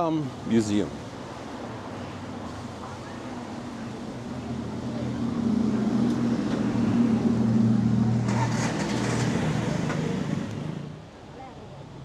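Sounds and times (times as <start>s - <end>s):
vehicle engine passing: 3.6s - 11.0s.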